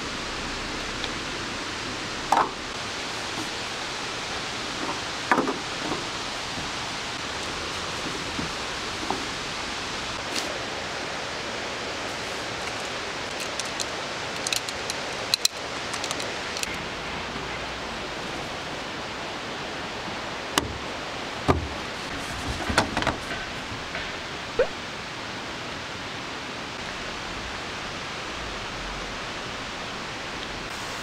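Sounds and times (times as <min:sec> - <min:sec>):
outdoor hiss: 0:00.0 - 0:31.0.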